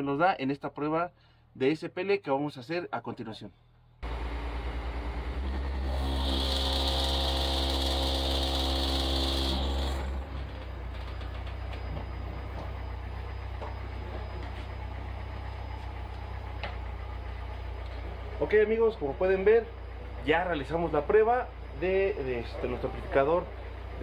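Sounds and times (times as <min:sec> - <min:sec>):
high buzz: 0:04.0 - 0:11.6.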